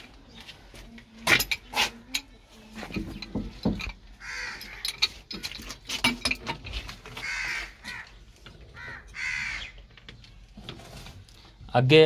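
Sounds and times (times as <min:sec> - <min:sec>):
crow cawing: 0:04.2 - 0:04.9, 0:07.1 - 0:09.9.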